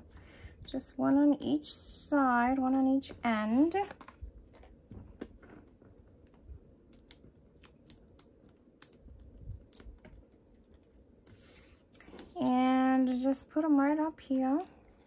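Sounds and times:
light rustling of paper: 3.0s - 7.2s, 9.0s - 12.7s.

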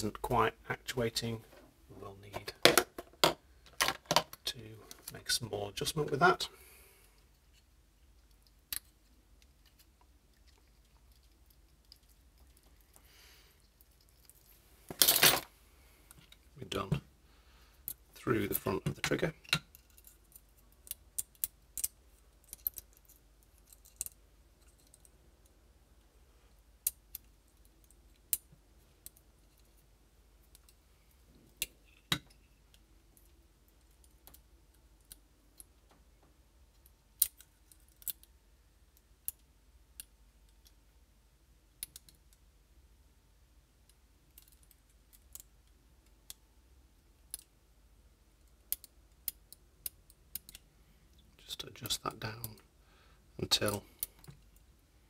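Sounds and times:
light clicks of parts handled: 17.8s - 26.1s, 43.8s - 46.4s, 48.4s - 52.8s, 53.5s - 54.8s.

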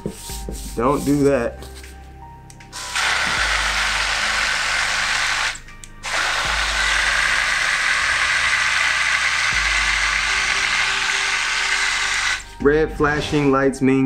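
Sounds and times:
blender motor whining: 2.8s - 12.5s.

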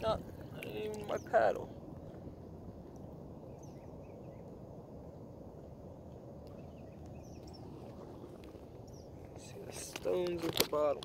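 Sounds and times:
low rumble: 0.0s - 10.4s
faint bird chirps: 3.3s - 5.3s, 6.4s - 9.7s.

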